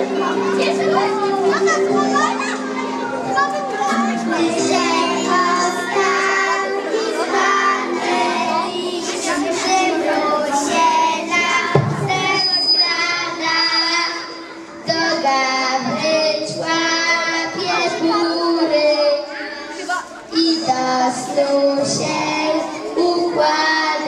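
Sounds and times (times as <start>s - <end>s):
children singing together: 0.0s - 24.0s
brief thump: 11.7s - 12.2s.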